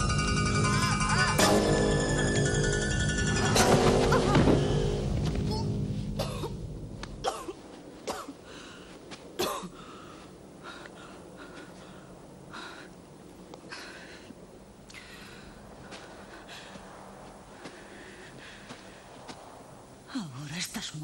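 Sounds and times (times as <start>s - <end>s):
background music: 0.0s - 7.5s
woman coughing and grunting: 6.2s - 6.6s, 7.2s - 8.4s, 9.4s - 9.8s
heavy breathing: 8.4s - 9.1s, 9.7s - 19.3s.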